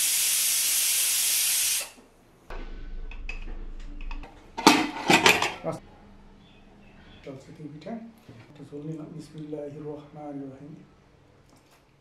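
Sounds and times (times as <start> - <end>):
pressure cooker steam hissing: 0.0 - 2.0.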